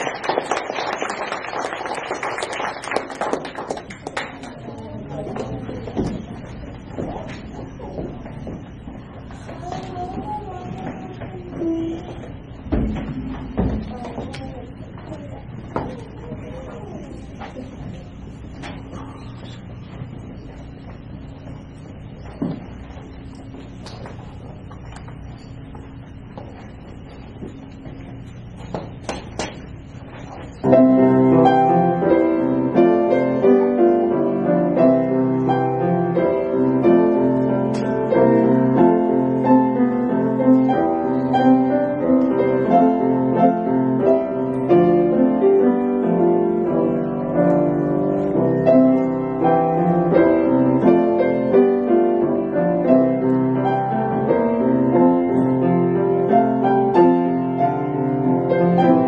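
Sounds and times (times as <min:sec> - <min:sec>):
piano duet: 0:30.5 - 0:59.0.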